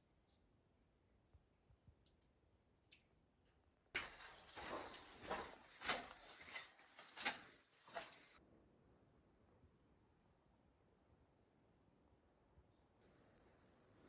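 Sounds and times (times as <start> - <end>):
scrapes and knocks: 4.0 - 8.4.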